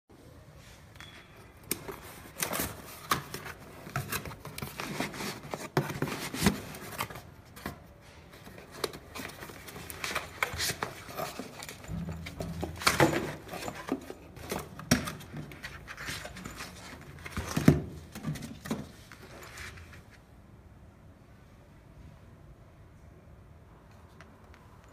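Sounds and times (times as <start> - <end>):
cardboard flaps rustling: 1.9 - 20.2.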